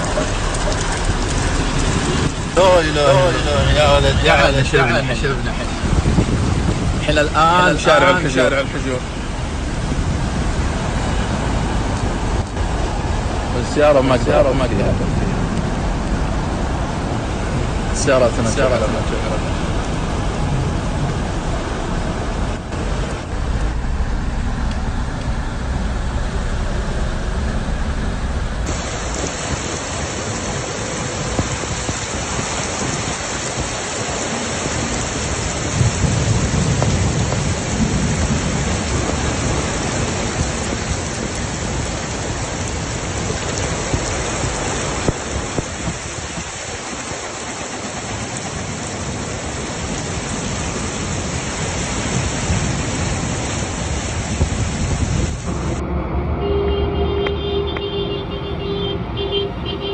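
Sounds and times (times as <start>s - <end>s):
thunder rumbling: 0.0s - 18.0s, 19.3s - 57.2s
heavy rain pouring: 0.0s - 59.9s.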